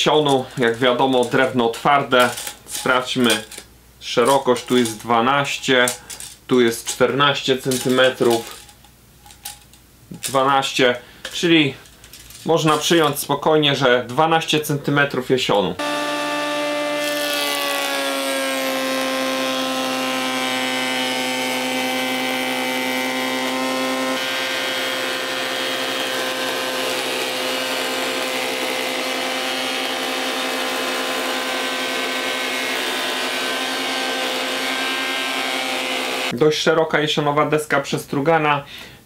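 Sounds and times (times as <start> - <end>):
planer motor whine: 15.8 - 36.3.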